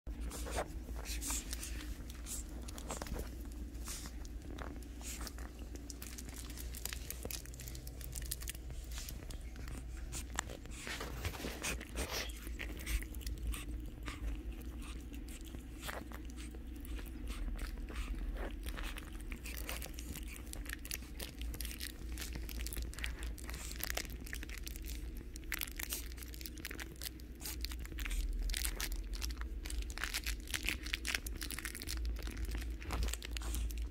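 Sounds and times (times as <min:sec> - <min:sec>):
soft rustles and clicks: 0:00.1 - 0:24.2
puppies chewing plush toy: 0:00.1 - 0:33.9
steady low hum: 0:00.1 - 0:33.9.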